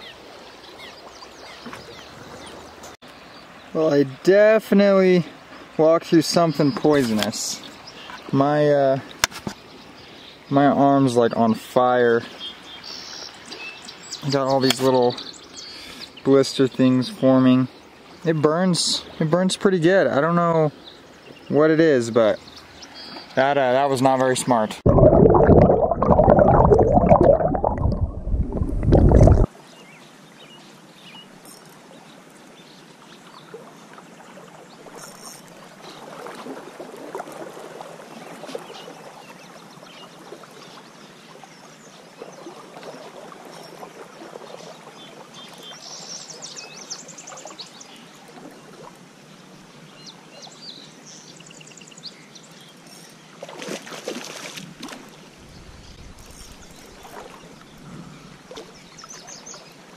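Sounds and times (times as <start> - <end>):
river current flowing: 0.0 - 11.2, 24.8 - 29.6, 31.3 - 51.4, 52.3 - 59.9
muffled underwater sloshing: 24.8 - 29.5.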